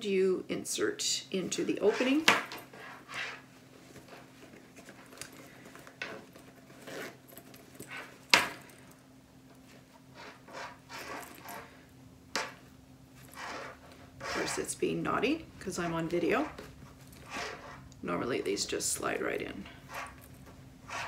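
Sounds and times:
fabric rustling: 1.7s - 14.7s.

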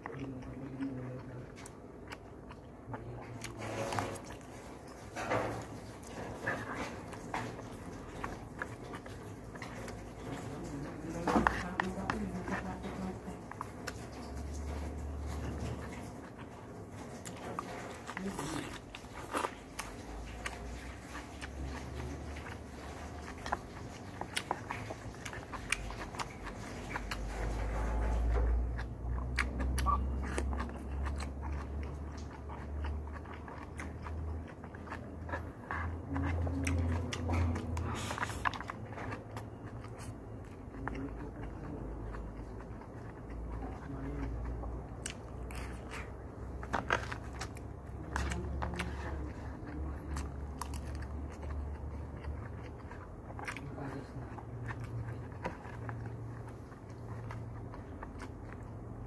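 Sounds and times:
chewing and biting: 0.0s - 59.0s
low steady hum: 0.0s - 59.0s.

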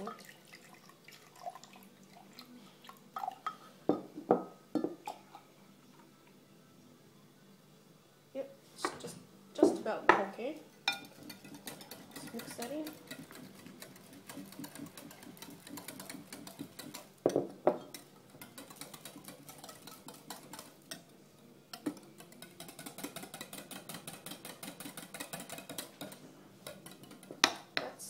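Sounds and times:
whisk clinking against glass: 10.8s - 21.1s, 21.7s - 27.4s.

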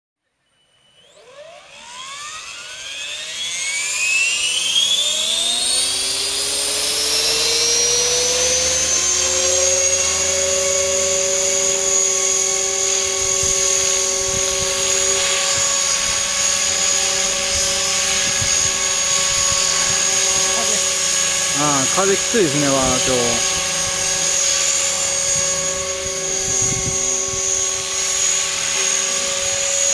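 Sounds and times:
rc helicopter rotor whine: 0.2s - 29.9s
wind on microphone: 13.2s - 20.6s, 25.8s - 28.0s.

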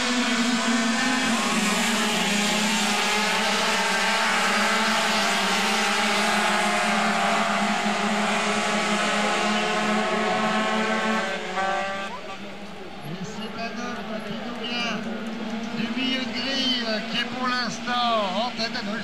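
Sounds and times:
two-stroke mopeds buzzing at high revs: 0.0s - 12.6s.

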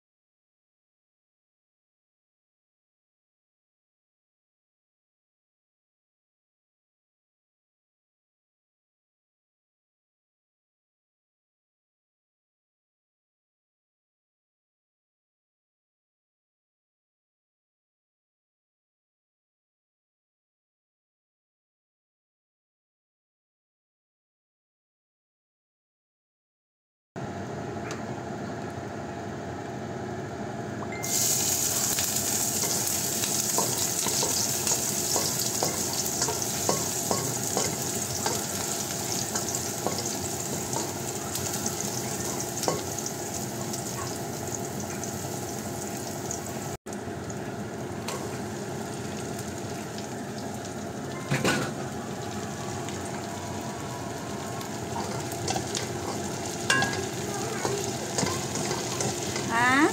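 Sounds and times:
garlic sizzling in hot oil: 31.0s - 59.9s
spatula scraping and tapping: 32.6s - 41.0s, 55.0s - 59.5s.

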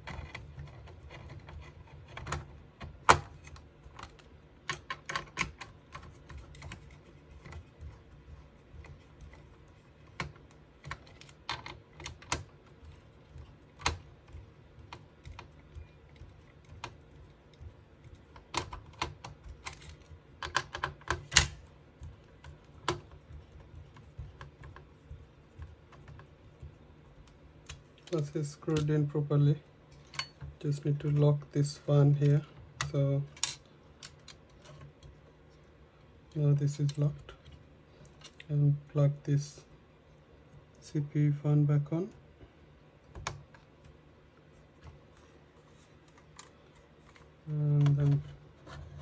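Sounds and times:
fan being handled: 0.0s - 35.2s.

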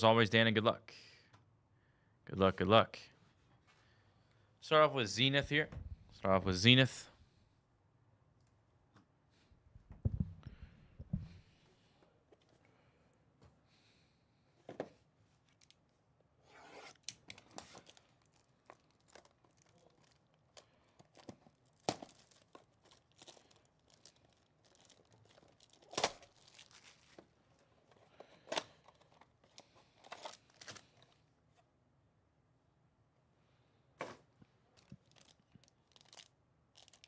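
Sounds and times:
packaging tearing and crinkling: 16.9s - 27.2s, 28.6s - 31.2s, 34.8s - 37.0s.

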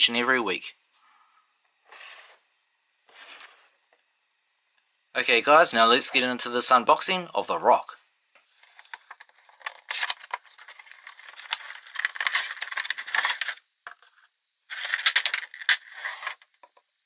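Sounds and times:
cardboard scraping: 1.9s - 2.4s, 3.1s - 3.8s, 8.6s - 16.6s.

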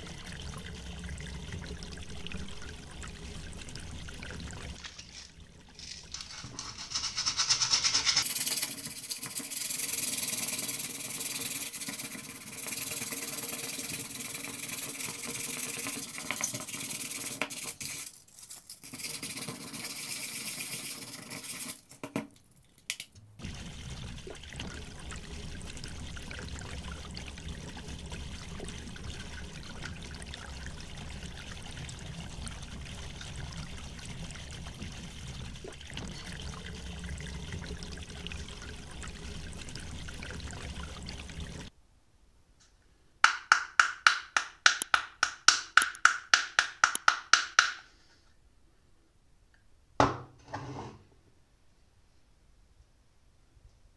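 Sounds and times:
sandpaper rasping on plastic: 6.1s - 8.3s
low background noise: 41.7s - 43.3s.

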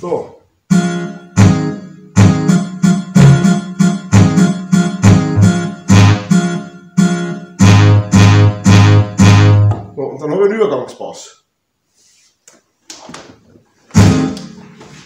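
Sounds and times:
plucked synth bass notes and chords: 3.2s - 6.5s, 7.6s - 9.9s.

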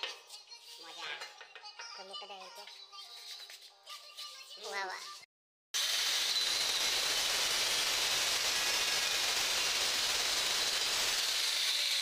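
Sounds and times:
tile cutter grinding ceramic tile: 5.8s - 12.0s.

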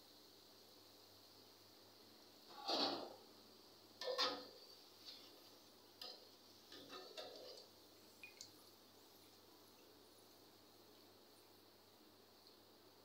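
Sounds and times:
steel spoon scraping a pan: 2.5s - 3.2s, 4.0s - 7.7s.

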